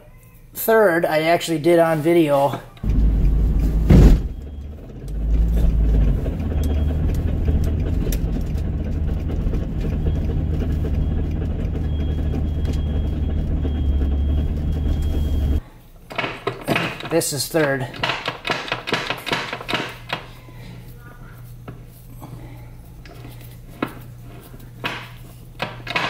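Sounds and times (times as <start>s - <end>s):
car engine running: 2.8s - 15.6s
road noise: 2.8s - 15.6s.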